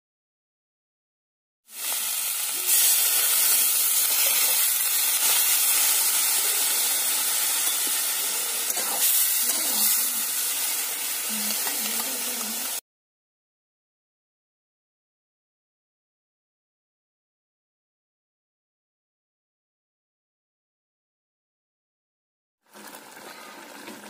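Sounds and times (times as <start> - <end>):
water sizzling in a hot wok: 1.7 - 12.8, 22.6 - 24.0.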